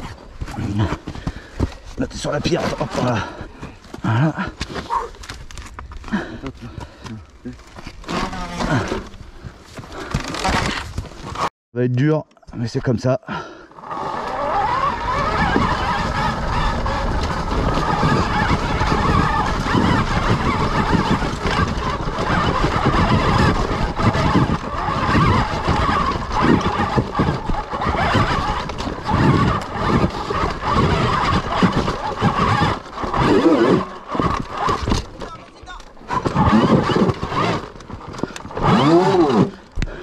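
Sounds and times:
electric motor whine: 13.8s - 35.0s, 36.1s - 39.7s.

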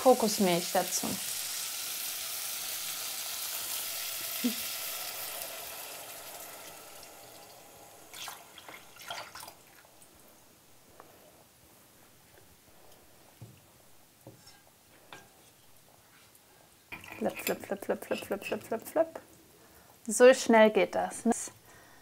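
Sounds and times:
vegetables sizzling: 0.0s - 10.4s
liquid pouring into pot: 2.0s - 9.9s.

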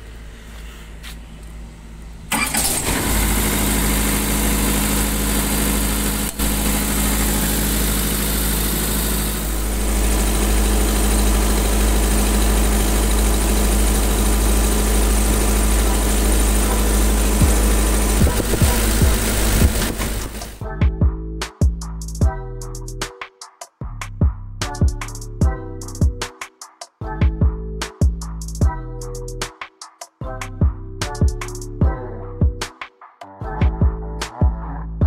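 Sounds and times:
diesel generator running: 0.0s - 20.6s.

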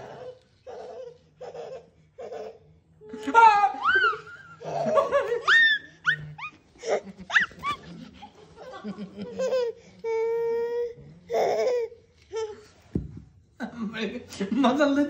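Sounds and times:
small child laughing: 1.4s - 9.8s.

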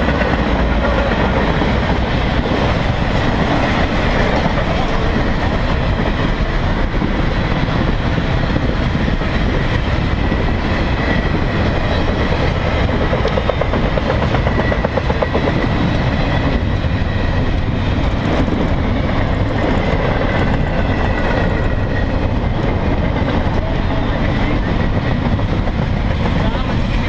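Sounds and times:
freight train wheels rolling on rails: 0.0s - 27.0s.

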